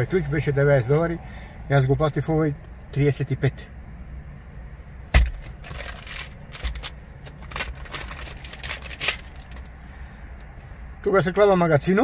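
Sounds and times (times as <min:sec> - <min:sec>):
plastic bag crinkling: 0:05.5 - 0:09.7.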